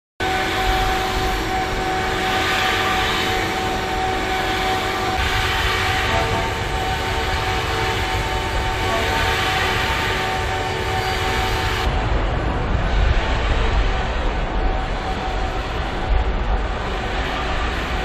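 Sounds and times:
large engine rumbling with whine: 0.2 - 18.0.

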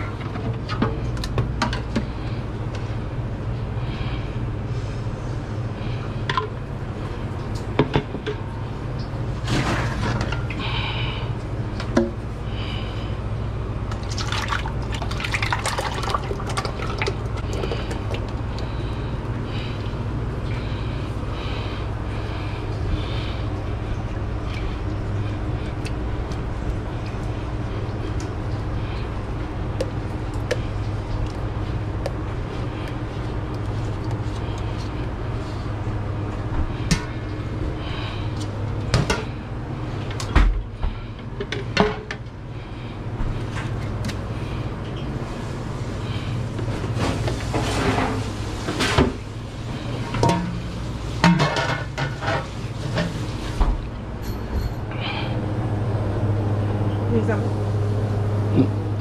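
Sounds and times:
low mechanical hum: 0.0 - 59.0
liquid pouring into container: 13.9 - 18.4
kitchen knocks and clatter: 51.2 - 52.4.

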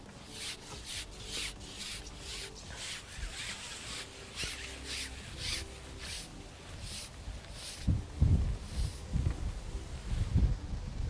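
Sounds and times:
fishing pole rubbing swishes: 0.2 - 9.2
wind buffeting microphone: 6.4 - 11.0.

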